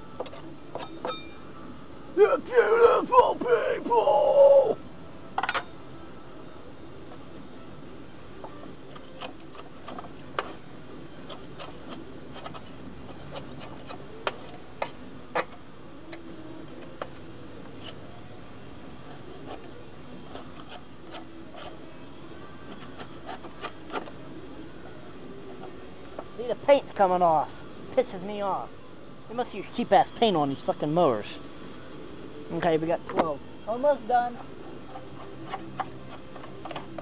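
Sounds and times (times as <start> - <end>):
metal scraper scraping metal: 20.3 - 21.8, 22.7 - 24.2.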